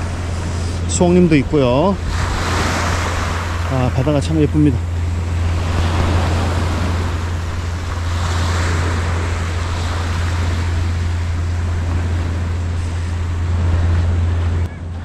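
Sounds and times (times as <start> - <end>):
low rumble: 0.0 - 15.0
waves washing onto pebble beach: 2.0 - 4.7.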